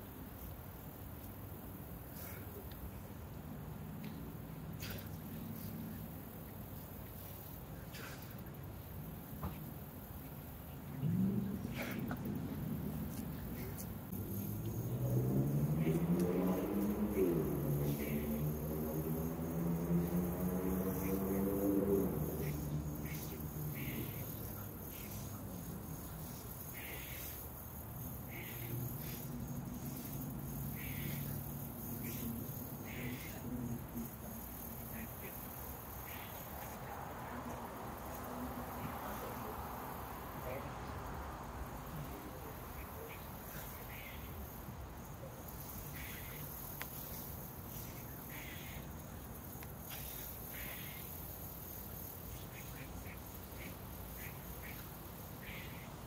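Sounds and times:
insects chirring: 0.0s - 56.0s.

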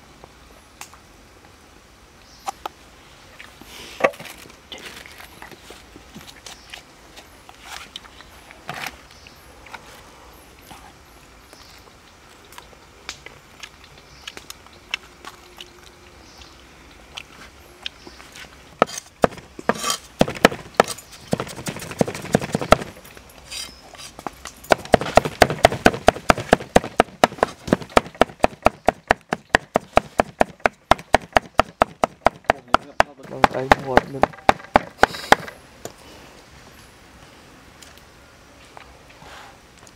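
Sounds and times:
cleaver chopping on wooden board: 18.8s - 22.9s, 24.7s - 35.5s.

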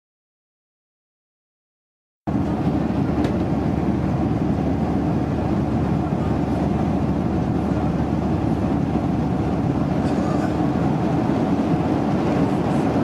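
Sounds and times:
airliner engine drone: 2.3s - 13.0s.

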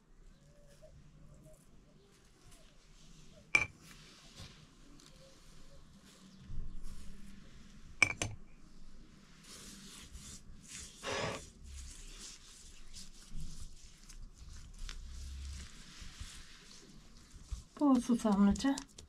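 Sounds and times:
soft rustling: 0.2s - 19.0s
scrape: 8.7s - 17.7s
light patter: 11.6s - 19.0s.

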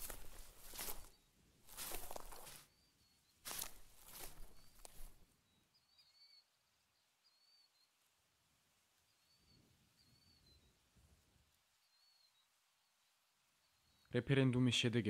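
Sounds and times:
footsteps on grass: 0.0s - 2.7s, 3.4s - 5.2s
faint high bird chirps: 0.1s - 8.1s, 9.0s - 11.1s, 11.7s - 14.2s.

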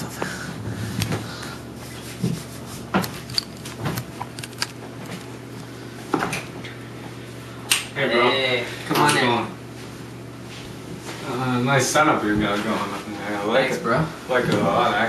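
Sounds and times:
low steady hum: 0.0s - 15.0s
objects being handled: 1.8s - 5.7s.

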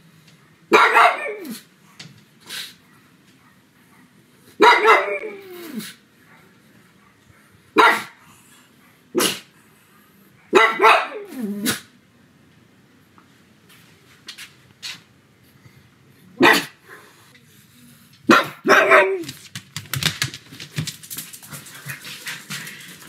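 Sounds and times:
dog barking: 0.7s - 1.6s, 4.6s - 5.4s, 7.8s - 8.2s, 10.5s - 11.8s, 16.4s - 16.8s, 18.3s - 19.3s.

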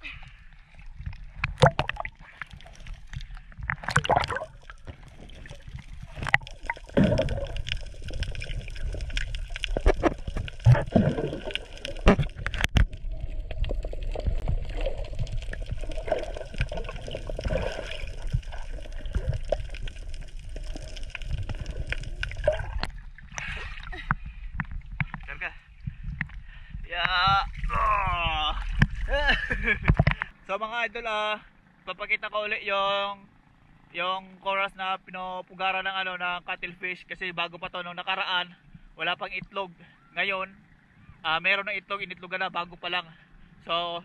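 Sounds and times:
underwater bubbling: 0.0s - 30.3s
underwater hum: 0.0s - 30.4s, 39.9s - 41.3s
water splashing around swimmer: 0.7s - 24.2s
underwater clicks: 1.0s - 25.3s.

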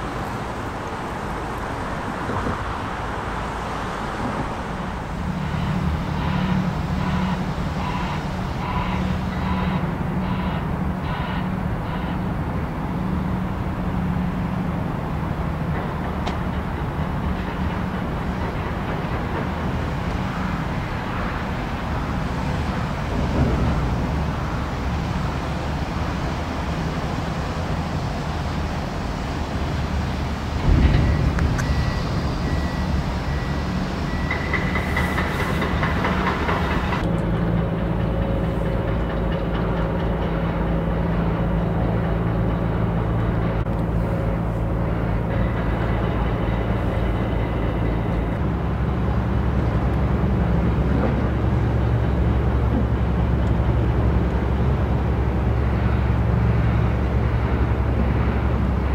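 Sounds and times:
heavy engines rumbling: 0.0s - 58.9s.

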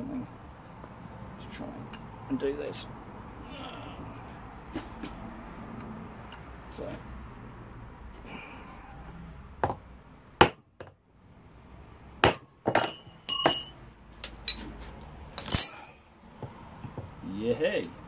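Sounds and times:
hammer striking metal: 12.2s - 14.4s
metal clinking and ringing: 12.6s - 14.6s, 15.4s - 15.9s.

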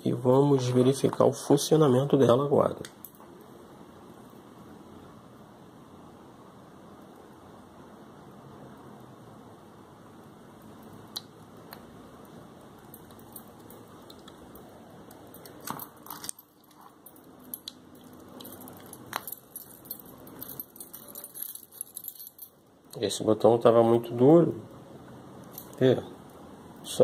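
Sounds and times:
keys jangling: 15.4s - 22.6s.

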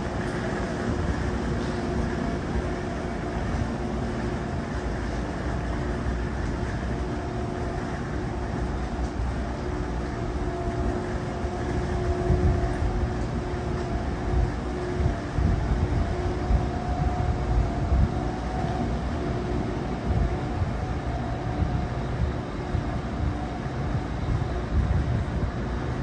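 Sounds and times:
standing train humming: 0.0s - 26.0s.

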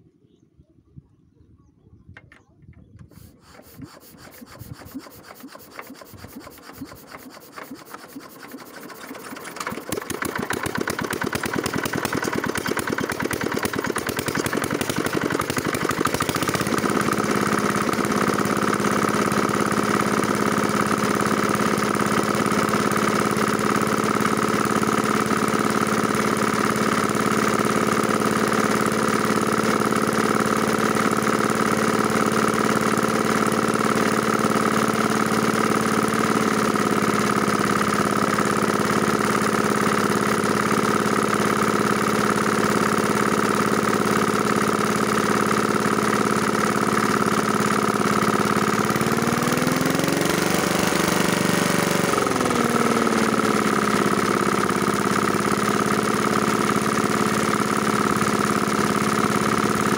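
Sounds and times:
small diesel engine knocking: 3.0s - 59.9s
water pump humming: 3.0s - 59.9s.

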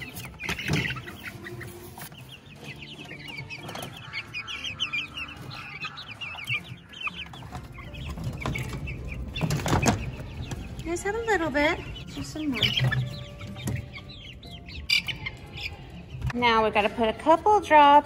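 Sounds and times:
chicks peeping: 0.0s - 18.0s.

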